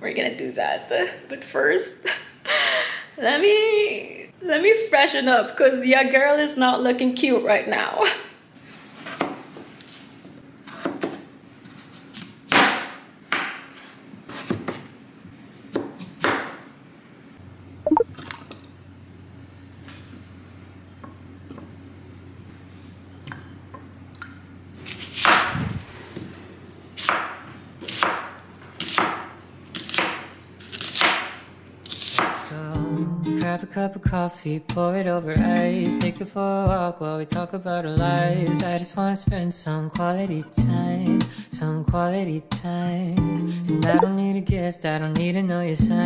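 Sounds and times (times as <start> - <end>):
knife chopping on wooden board: 27.1 - 29.3.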